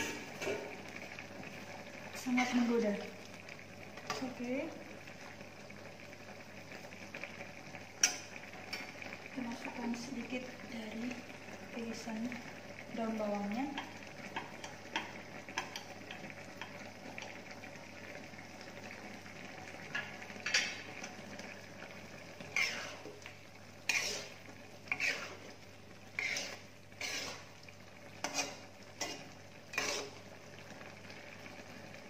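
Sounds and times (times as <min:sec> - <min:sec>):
spatula scraping wok: 0:00.0 - 0:00.8, 0:19.9 - 0:21.2, 0:22.2 - 0:30.4
low sizzle of simmering food: 0:00.0 - 0:32.0.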